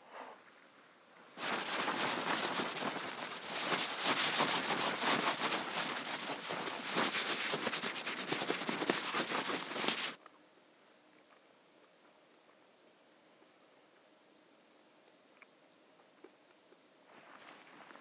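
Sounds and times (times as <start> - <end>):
glove brushing frost off fabric: 1.4 - 10.2.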